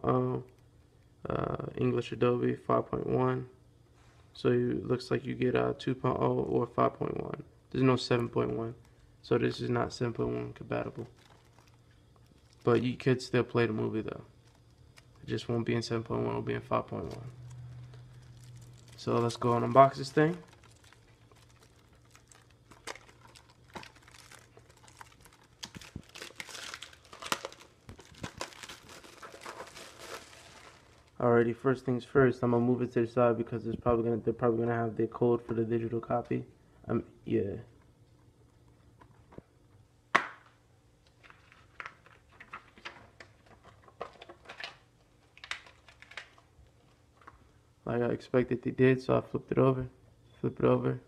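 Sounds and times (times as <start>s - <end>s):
plastic wrap crinkling and tearing: 10.6s - 15.4s, 16.7s - 31.2s, 41.1s - 46.5s.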